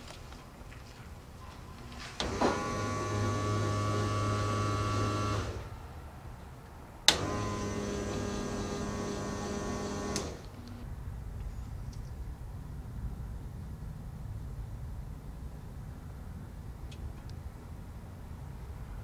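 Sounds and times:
small electric motor running: 0:07.2 - 0:10.4.

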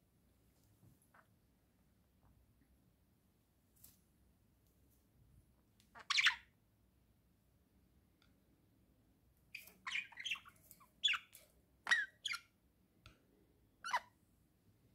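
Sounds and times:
budgerigars squawking and chirping: 0:06.0 - 0:06.4, 0:09.6 - 0:11.3.

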